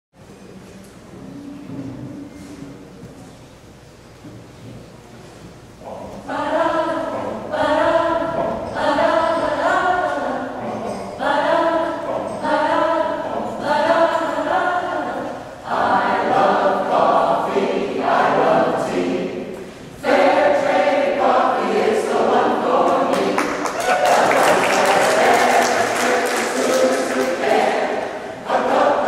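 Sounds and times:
mixed choir singing a cappella: 0:05.9 - 0:29.0.

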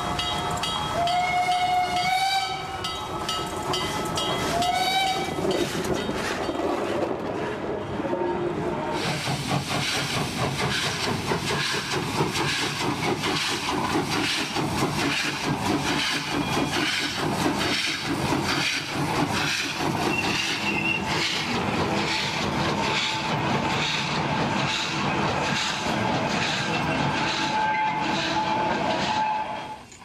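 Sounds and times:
steam locomotive exhaust chuffs: 0:00.0 - 0:06.5, 0:08.9 - 0:29.9
wheels rumbling on rails: 0:00.0 - 0:30.0
steam hiss: 0:08.9 - 0:29.0.

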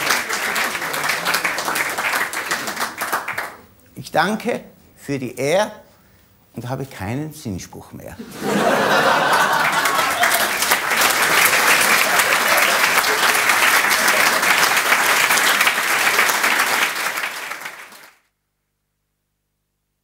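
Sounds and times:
audience applauding: 0:00.0 - 0:03.6, 0:08.4 - 0:18.2.

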